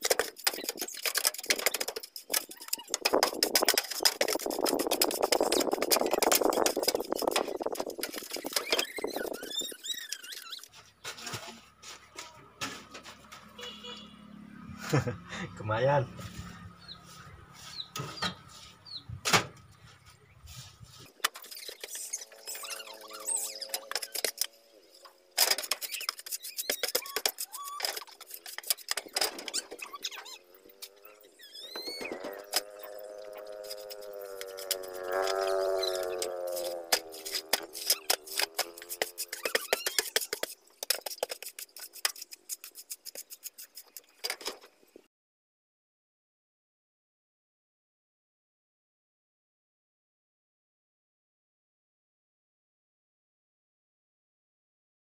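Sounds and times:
plastic bottle crackling: 0.0s - 11.3s
rustling bursts: 0.0s - 12.1s
hands scraping wet mortar: 0.0s - 13.3s, 16.3s - 18.9s, 20.0s - 24.6s, 25.4s - 44.6s
brief high squeaks: 7.1s - 11.3s, 21.4s - 24.5s, 25.6s - 33.9s, 35.6s - 40.5s.

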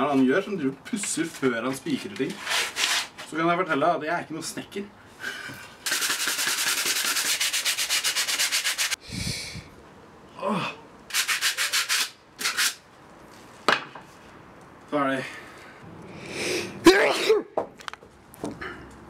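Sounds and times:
sandpaper rubbing on wood: 2.3s - 3.2s, 5.9s - 9.0s, 11.1s - 12.8s.

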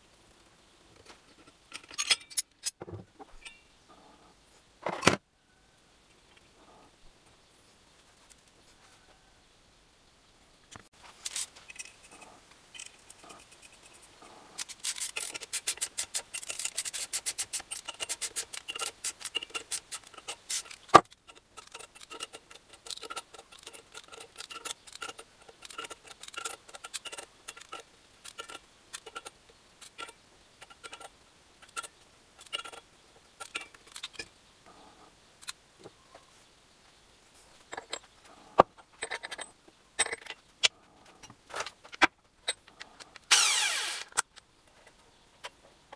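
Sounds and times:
metal tools clicking and scraping: 1.0s - 3.7s, 11.2s - 34.3s, 37.7s - 45.6s.

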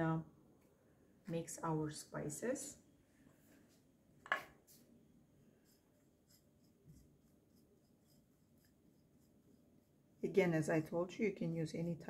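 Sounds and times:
finger scratching dry spices: 5.6s - 10.0s.

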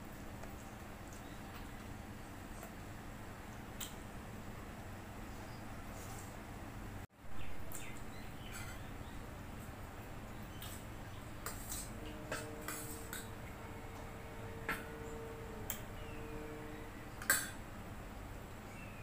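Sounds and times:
steel spoon clinking against bowl: 11.4s - 13.3s.

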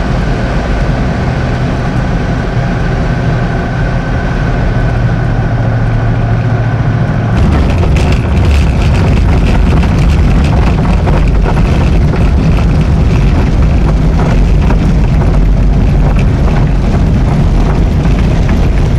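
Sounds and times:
light aircraft engine and propeller: 0.0s - 18.9s
wind buffeting on microphone: 7.1s - 18.9s.

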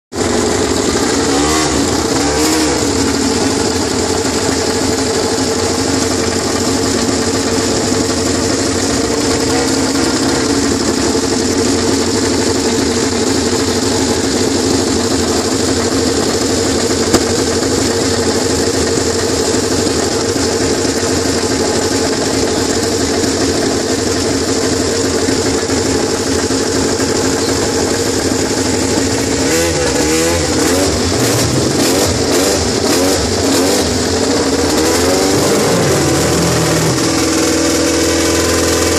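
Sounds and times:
motorcycle engines revving: 0.2s - 38.9s.

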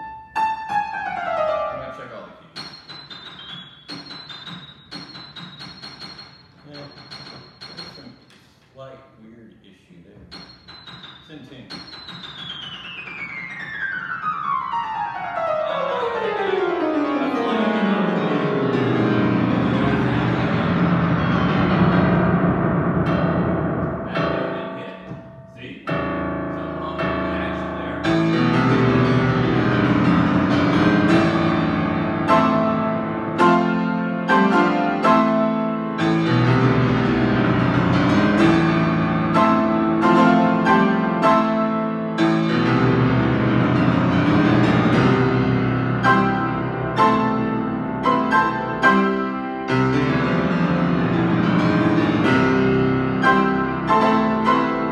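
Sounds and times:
piano notes descending: 0.0s - 8.3s, 10.3s - 54.9s.

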